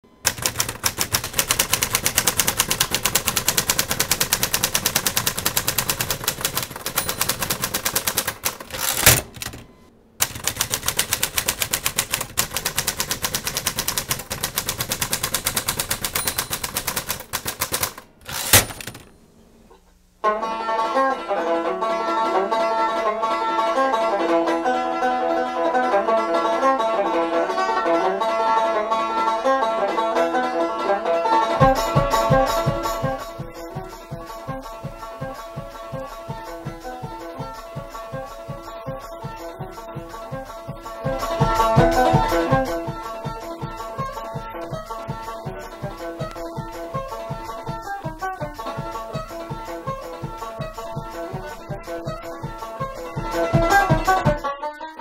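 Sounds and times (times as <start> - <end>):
typewriter clatter: 0.2 - 19.1
carriage-return ding and slide: 16.2 - 16.7
banjo-led folk music: 20.2 - 55.0.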